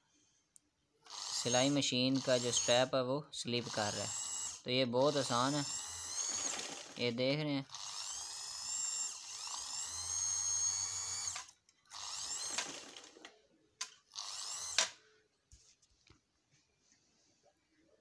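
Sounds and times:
sewing machine motor whining: 1.0s - 2.9s, 3.6s - 13.3s, 14.1s - 15.0s.

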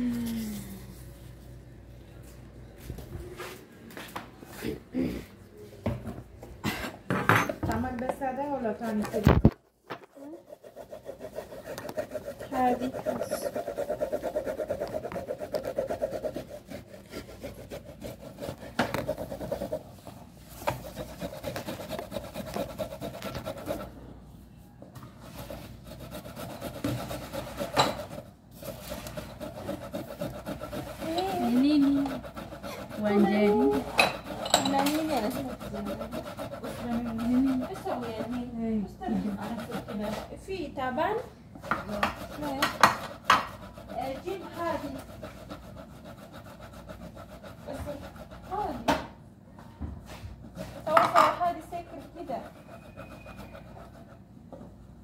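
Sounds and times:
rubbing rasping noise: 10.1s - 24.0s, 25.2s - 40.4s, 41.7s - 49.0s, 50.5s - 54.2s.

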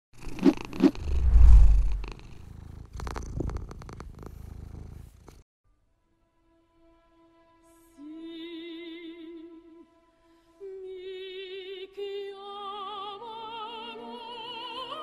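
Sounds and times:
cat purring: 0.2s - 5.4s.

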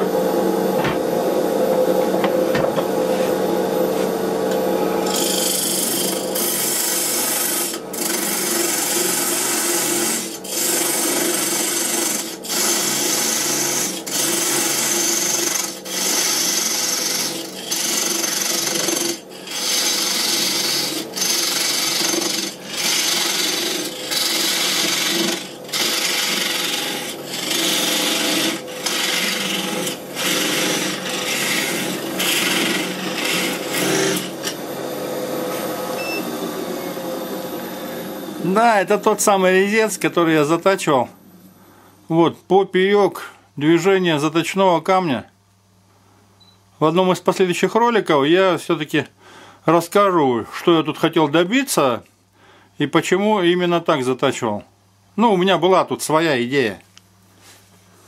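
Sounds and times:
lathe tool scraping wood: 5.0s - 35.9s
wood lathe running: 5.0s - 37.1s.

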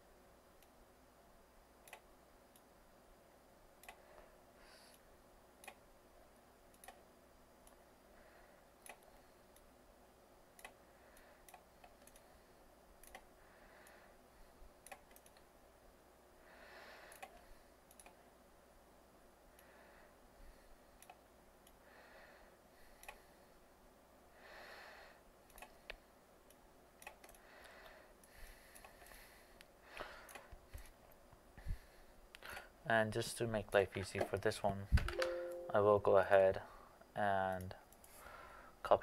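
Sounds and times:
faint computer mouse clicks: 1.8s - 2.7s, 17.1s - 18.2s, 23.0s - 23.2s, 25.5s - 29.7s.

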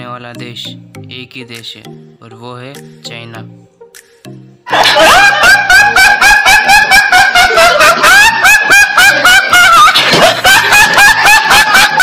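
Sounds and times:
boy laughing high-pitched: 4.7s - 12.0s.

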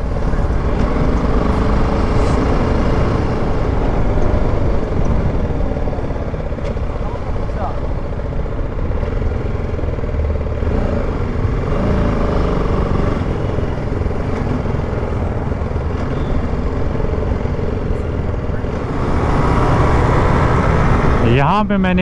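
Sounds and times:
motorcycle engine running: 0.0s - 21.3s
road rumble: 0.0s - 22.0s.

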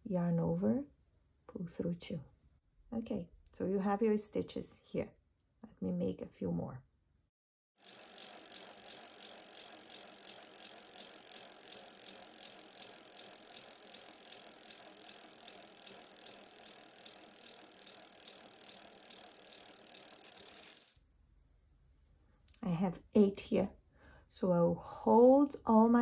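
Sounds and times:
fast ticking rattle: 7.8s - 21.0s.

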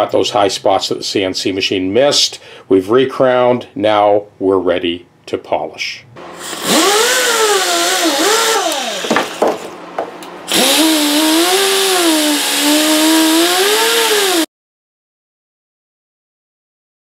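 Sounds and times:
rotary tool motor whine: 6.2s - 9.5s, 10.5s - 14.5s.

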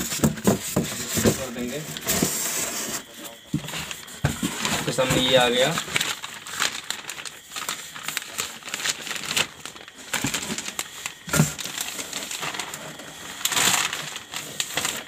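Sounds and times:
plastic bag crinkling: 0.0s - 2.2s, 3.0s - 15.0s.

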